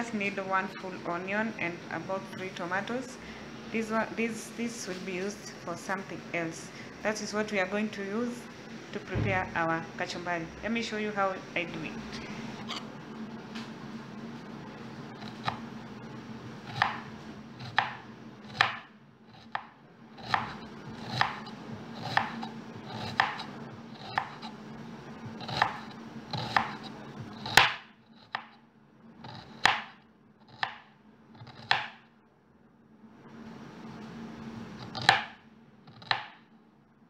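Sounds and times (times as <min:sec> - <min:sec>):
knife slicing onion on wood: 0:15.2 - 0:15.6, 0:16.6 - 0:24.6, 0:25.3 - 0:28.6, 0:29.2 - 0:32.0, 0:34.8 - 0:36.4.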